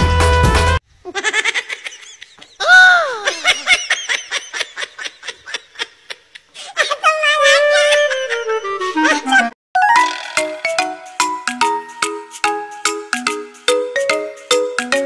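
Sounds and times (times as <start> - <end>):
music: 0.0 - 0.8, 8.0 - 15.0.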